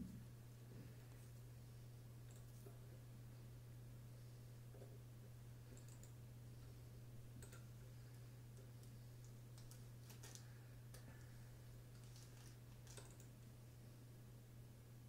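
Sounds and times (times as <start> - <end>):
low hum: 0.0 - 15.0
faint clicks: 7.4 - 7.7.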